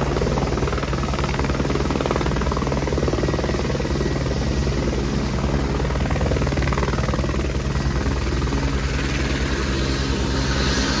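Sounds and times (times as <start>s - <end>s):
helicopter rotor beat: 0.0s - 11.0s
helicopter turbine whine: 0.0s - 11.0s.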